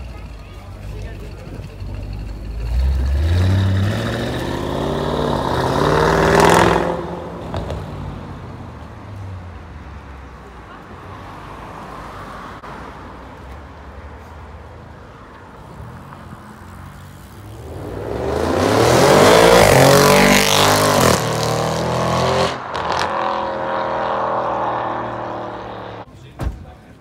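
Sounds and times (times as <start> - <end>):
low engine rumble: 0.0 - 3.4
sports car accelerating past: 2.8 - 8.6, 17.4 - 26.1.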